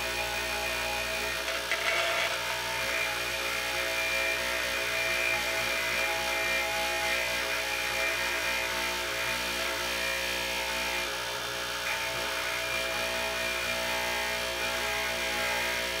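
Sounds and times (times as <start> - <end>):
metal rasping on grinding wheel: 0.0 - 4.4
bench grinder motor hum: 0.0 - 16.0.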